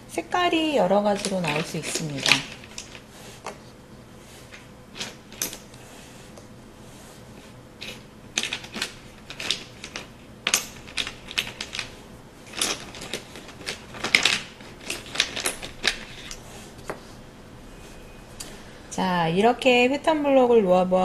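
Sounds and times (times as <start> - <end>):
plastic blocks clacking: 1.2 - 3.0, 7.8 - 11.9, 12.5 - 16.4.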